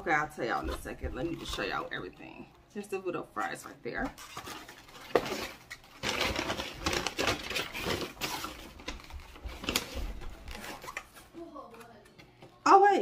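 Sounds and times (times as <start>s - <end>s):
paper bag rustling: 4.2s - 11.7s.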